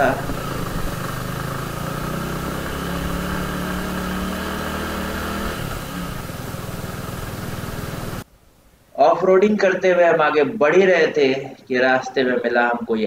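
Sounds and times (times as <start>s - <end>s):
motorcycle engine running: 0.0s - 8.2s.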